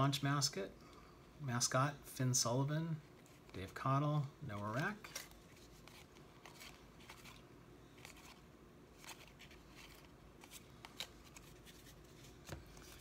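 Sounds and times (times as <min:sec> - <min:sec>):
trading cards being flipped: 0:04.5 - 0:13.0.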